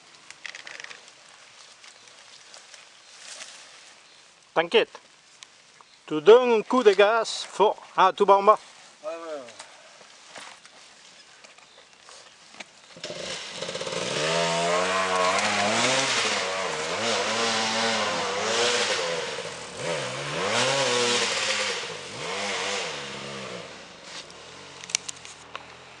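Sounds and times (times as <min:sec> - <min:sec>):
dirt bike engine revving: 0:13.0 - 0:24.9.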